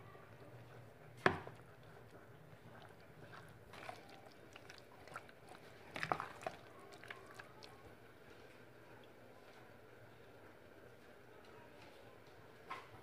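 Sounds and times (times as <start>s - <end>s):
wet squelching of chicken marinade: 1.4s - 9.1s.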